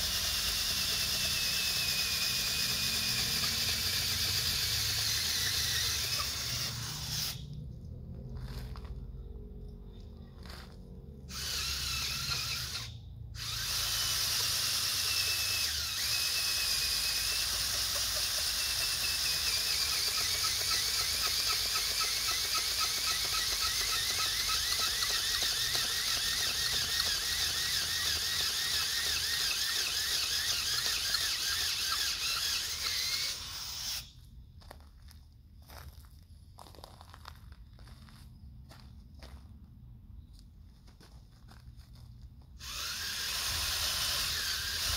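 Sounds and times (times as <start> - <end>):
cordless drill motor whining: 0.0 - 7.5, 11.3 - 34.2, 42.6 - 44.9.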